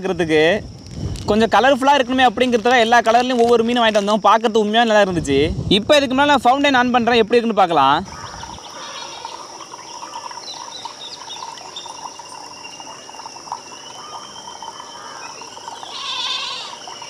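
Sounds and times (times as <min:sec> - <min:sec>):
high insect drone: 0:00.0 - 0:17.0
long held animal call: 0:08.1 - 0:17.0
short chirping calls: 0:08.1 - 0:17.0.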